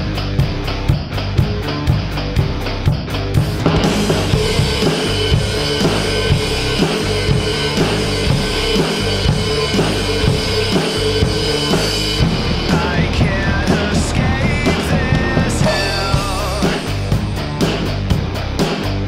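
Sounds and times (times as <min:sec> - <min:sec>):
drum kit rock beat: 0:00.0 - 0:19.0
recorded rock song: 0:00.0 - 0:19.0.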